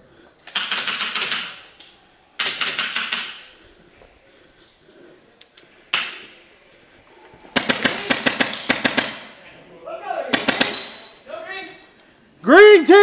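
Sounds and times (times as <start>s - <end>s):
airsoft guns firing bursts: 0.5s - 1.7s, 2.4s - 3.5s, 7.6s - 9.4s, 10.3s - 10.8s.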